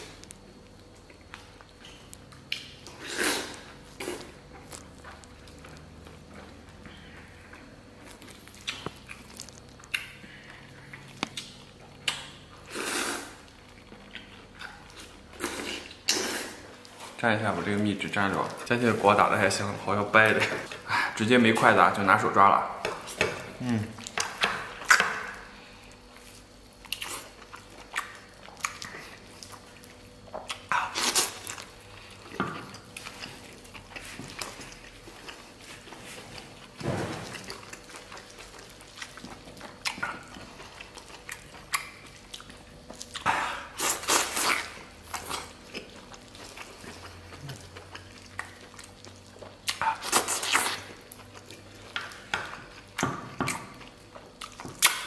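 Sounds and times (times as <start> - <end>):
chewing mouth noises: 26.8 - 55.0.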